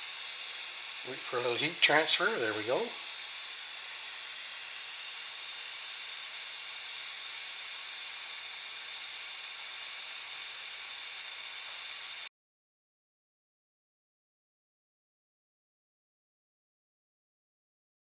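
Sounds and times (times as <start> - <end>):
soldering iron burner hissing: 0.0 - 12.3.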